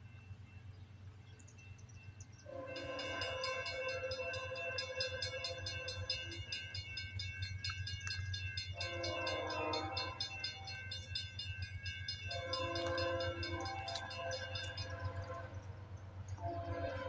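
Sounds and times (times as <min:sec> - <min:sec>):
locomotive horn blasts: 0:02.5 - 0:06.5, 0:08.1 - 0:11.4, 0:12.1 - 0:17.0.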